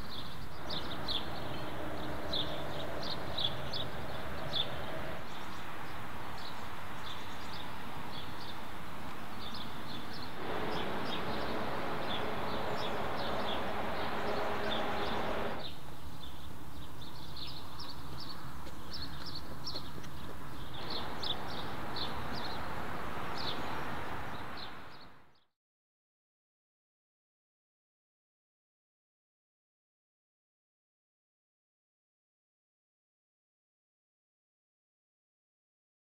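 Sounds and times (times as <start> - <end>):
small birds chirping: 0.0 - 25.2
engine and road rumble: 0.4 - 7.0, 7.6 - 15.7, 18.6 - 25.2.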